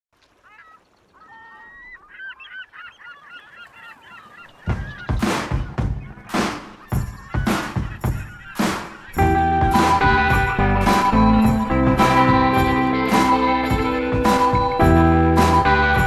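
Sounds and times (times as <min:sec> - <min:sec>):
birds calling: 0:00.2 - 0:16.0
steady drum beat: 0:04.7 - 0:16.0.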